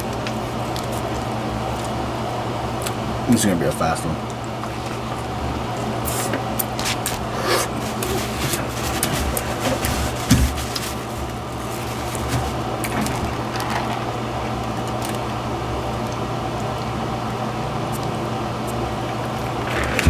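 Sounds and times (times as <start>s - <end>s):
steady low hum: 0.0s - 20.0s
person chewing: 6.1s - 9.6s.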